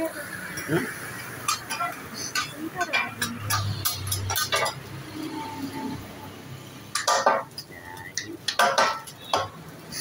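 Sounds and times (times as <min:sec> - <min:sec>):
metal spatulas clanking on griddle: 0:01.4 - 0:05.0, 0:06.9 - 0:10.0.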